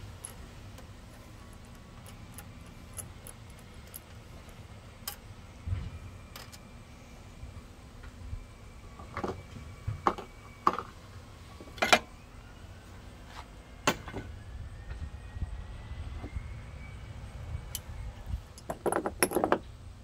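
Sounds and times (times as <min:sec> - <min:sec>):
hand tools clicking and knocking: 0:18.6 - 0:19.6.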